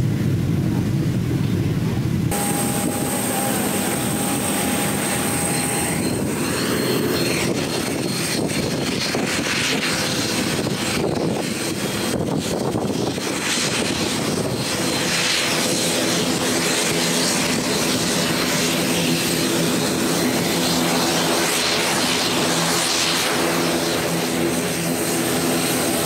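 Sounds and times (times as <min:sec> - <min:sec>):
low tonal hum: 0:00.0 - 0:08.6
airliner engines droning: 0:00.0 - 0:26.0.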